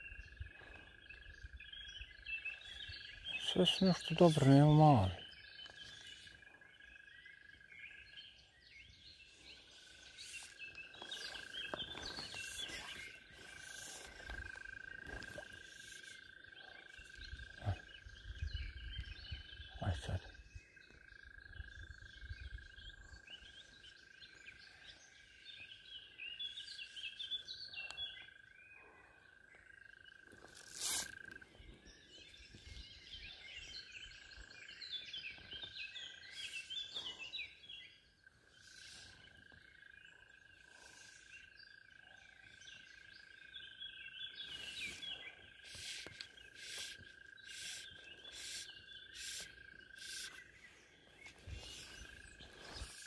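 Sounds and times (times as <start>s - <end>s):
small animals chirping: 10.1s - 20.2s, 44.5s - 50.5s.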